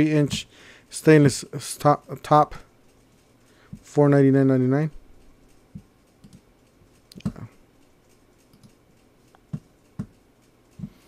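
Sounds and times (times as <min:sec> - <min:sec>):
computer mouse clicks: 0:05.5 - 0:11.0.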